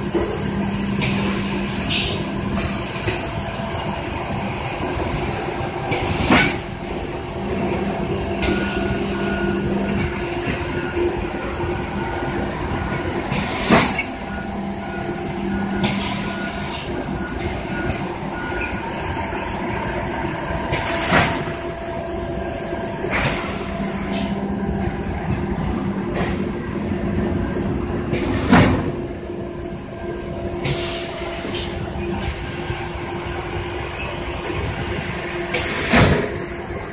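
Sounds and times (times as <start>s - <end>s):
hiss: 6.0s - 6.7s, 13.3s - 14.1s, 18.6s - 24.4s, 30.6s - 36.9s.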